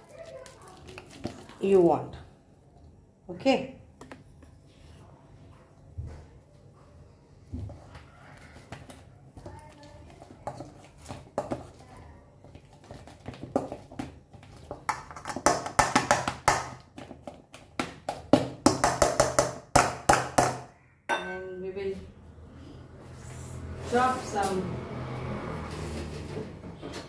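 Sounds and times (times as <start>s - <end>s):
potatoes being mashed: 0.0s - 2.1s, 7.7s - 20.6s.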